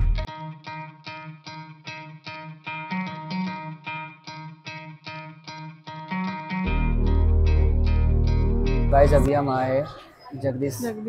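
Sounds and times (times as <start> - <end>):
plucked guitar music: 0.0 - 9.3
loud low hum: 6.7 - 9.3.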